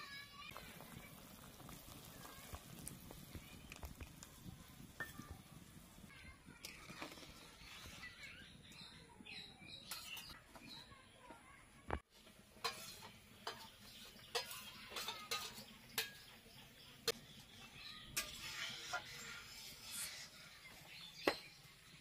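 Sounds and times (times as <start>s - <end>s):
metal spatula scraping a pan: 6.7s - 8.5s, 9.8s - 10.4s, 12.2s - 16.5s, 17.5s - 21.5s.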